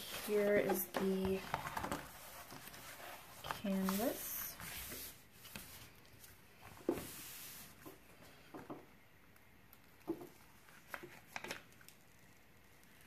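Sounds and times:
paper rustling and crinkling: 0:00.0 - 0:08.0, 0:10.4 - 0:12.1.

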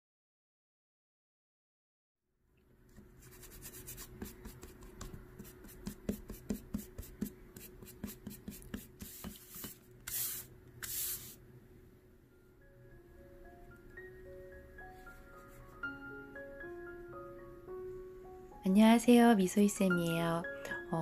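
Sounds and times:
eraser rubbing on paper: 0:03.2 - 0:11.4.

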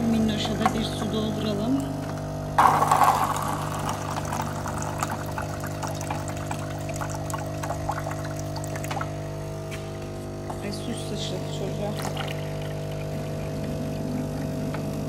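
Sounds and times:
water gushing into paper cup: 0:02.6 - 0:09.2, 0:11.9 - 0:13.6.

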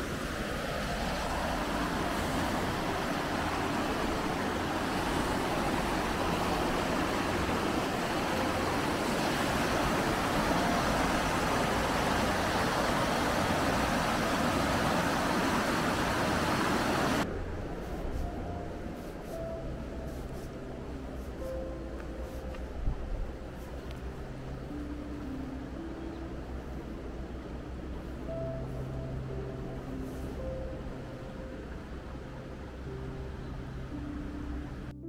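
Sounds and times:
water rushing from a sluice: 0:00.0 - 0:17.3.

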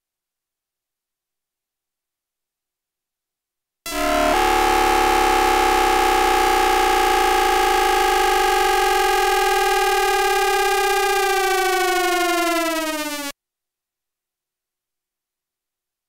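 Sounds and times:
inverter electronic tones: 0:03.9 - 0:13.3.

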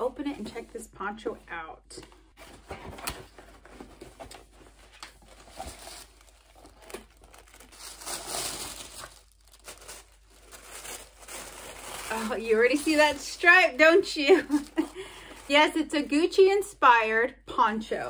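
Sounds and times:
cardboard box being opened: 0:02.4 - 0:10.0
tissue paper rustling: 0:02.4 - 0:15.6.

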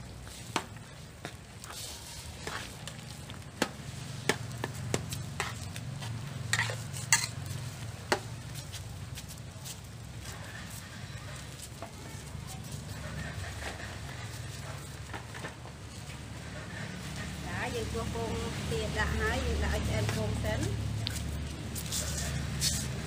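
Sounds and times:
broth bubbling and sizzling: 0:00.0 - 0:23.0
metal spatula scraping wok: 0:03.9 - 0:08.6, 0:12.8 - 0:15.6.

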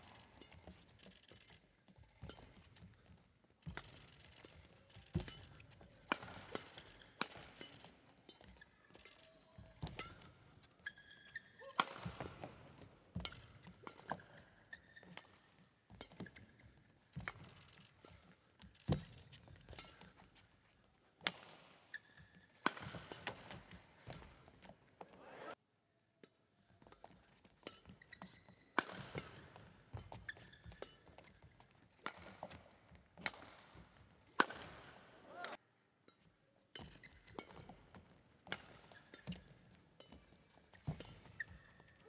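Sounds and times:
shoes squeaking on court floor: 0:00.0 - 0:25.6, 0:26.8 - 0:42.0
racket striking shuttlecock: 0:02.2 - 0:09.2, 0:09.8 - 0:17.8, 0:22.6 - 0:25.4, 0:26.8 - 0:35.6, 0:36.8 - 0:41.8.

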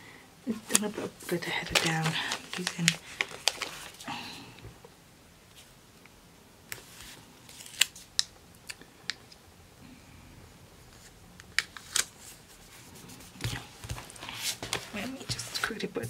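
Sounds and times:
faint paper rustling: 0:00.5 - 0:04.6, 0:06.7 - 0:08.1, 0:10.9 - 0:15.9.

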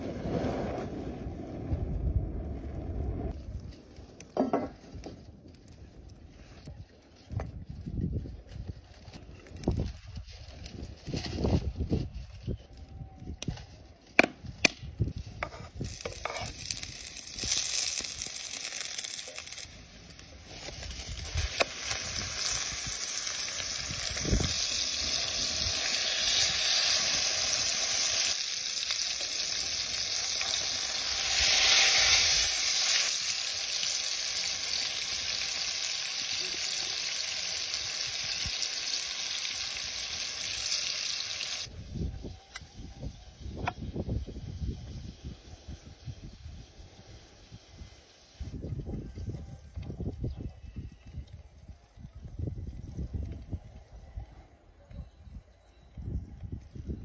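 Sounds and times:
burger patty sizzling in pan: 0:15.8 - 0:41.7.

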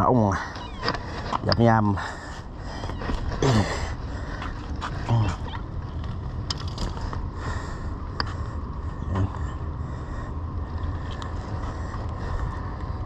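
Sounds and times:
steady low rumble: 0:00.0 - 0:13.0.

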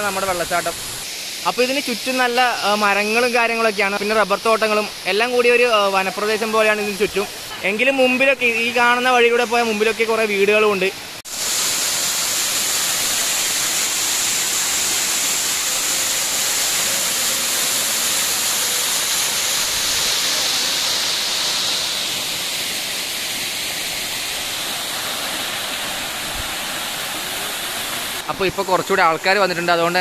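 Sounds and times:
waterfall pouring onto rock: 0:11.2 - 0:26.0.

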